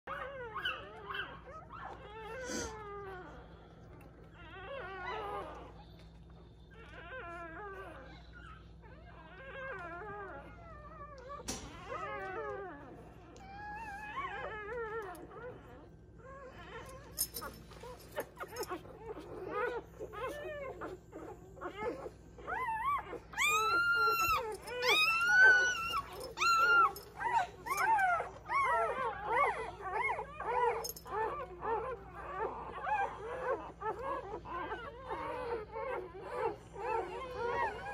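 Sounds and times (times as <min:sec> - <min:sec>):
puppies squeaking and whimpering: 0:00.1 - 0:37.9.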